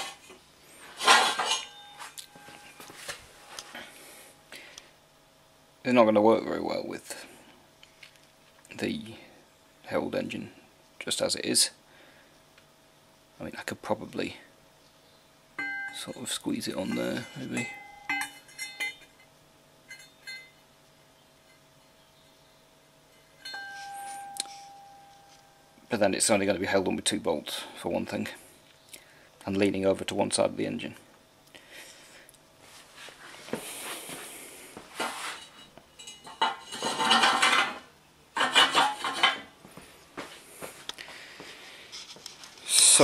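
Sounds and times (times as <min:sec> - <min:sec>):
metal clanking and scraping: 0:00.9 - 0:02.6, 0:16.1 - 0:19.2, 0:35.0 - 0:39.5
sharp ringing metal clinks: 0:15.6 - 0:19.2, 0:19.9 - 0:20.6, 0:23.1 - 0:25.8
metal parts knocking: 0:36.0 - 0:37.8.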